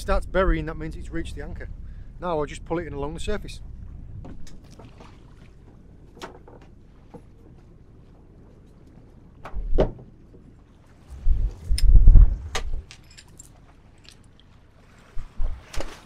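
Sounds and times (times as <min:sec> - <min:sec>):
anchor chain clinking: 0:12.8 - 0:14.3.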